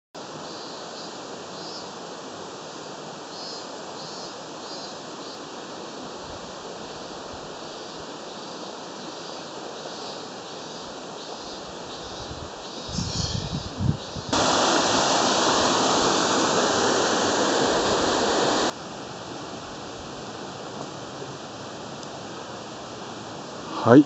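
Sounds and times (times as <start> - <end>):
mountain stream rushing: 14.3 - 24.0.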